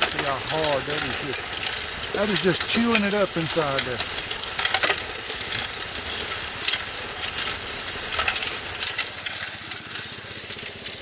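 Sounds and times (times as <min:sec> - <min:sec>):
gravel tumbling in barrel: 0:00.0 - 0:11.0
water spraying: 0:00.0 - 0:11.0.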